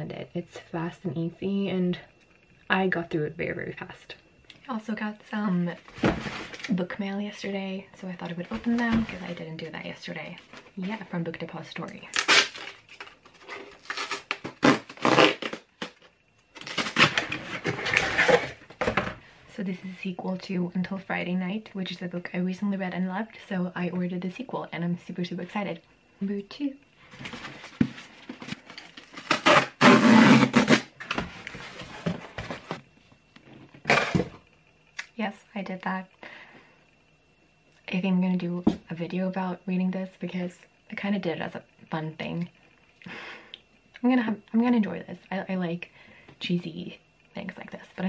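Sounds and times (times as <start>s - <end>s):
cardboard rustling and knocks: 5.9s - 6.6s
cardboard ripping and crinkling: 12.1s - 16.0s, 16.6s - 18.6s, 27.3s - 31.0s.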